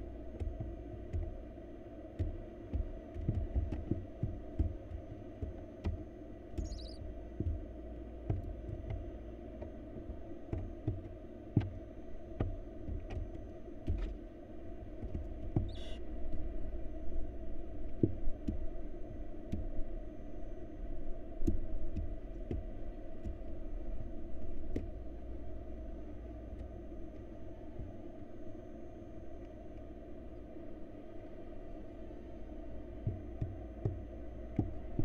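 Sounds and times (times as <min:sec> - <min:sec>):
steady low hum: 0:00.0 - 0:35.0
thumps in wooden nest box: 0:02.2 - 0:07.6.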